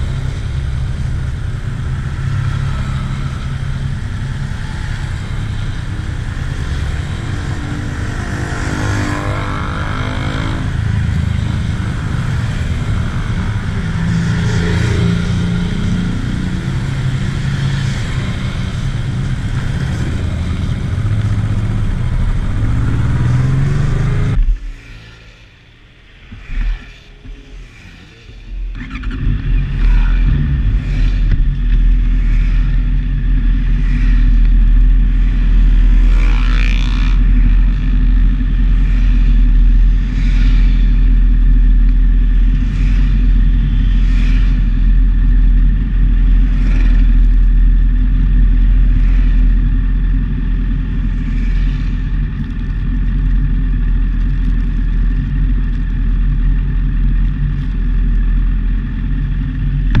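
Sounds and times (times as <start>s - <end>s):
motorcycle idling: 28.7s - 60.0s.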